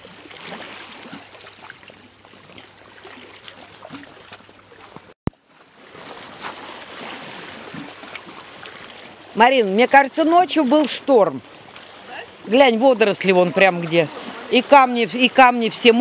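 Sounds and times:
small splashes and trickles: 0.0 - 9.4
sea water lapping against rocks: 0.0 - 16.0.

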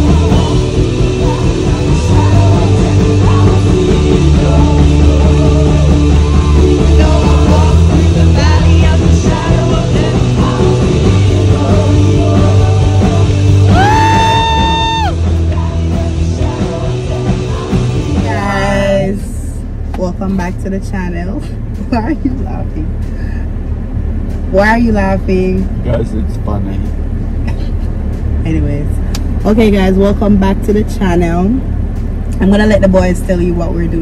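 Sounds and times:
song with sung vocals: 0.0 - 19.9
heavy bass: 0.0 - 34.0.

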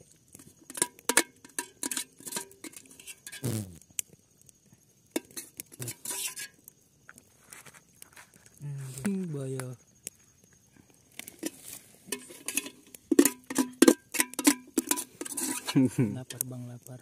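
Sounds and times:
utensil clinking in metal kettle: 0.6 - 3.4, 12.1 - 15.9.

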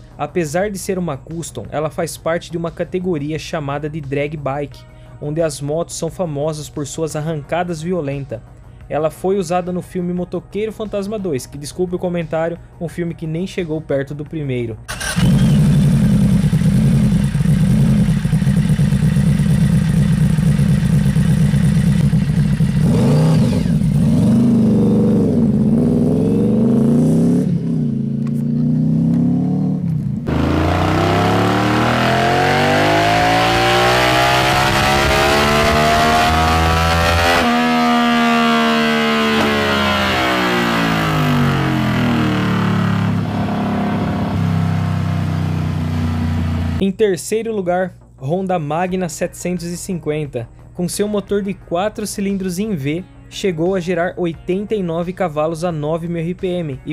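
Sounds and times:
motorcycle engine idling and revving: 14.9 - 46.8
motorcycle engine revving on dyno: 14.9 - 46.8.

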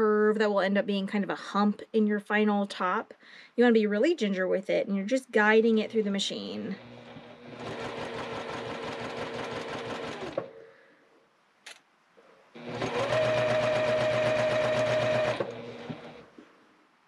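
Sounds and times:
electric sewing machine stitching: 6.4 - 10.5, 12.6 - 16.3.

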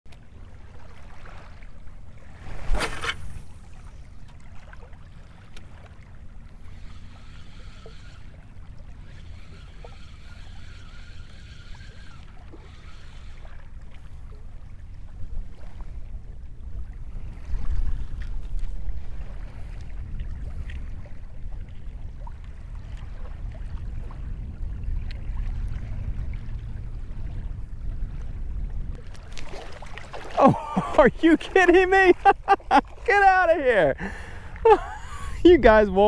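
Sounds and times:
choppy water: 0.1 - 36.0
wind rumbling on microphone: 0.3 - 31.2
faint steady whine: 1.6 - 29.3.

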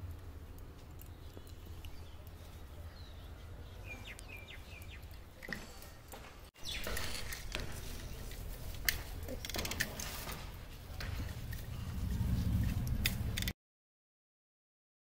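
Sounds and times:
low outdoor rumble: 0.0 - 6.1, 6.7 - 13.5
rustling of plants: 0.0 - 13.4
bird chirps: 1.0 - 5.9, 6.6 - 8.3.

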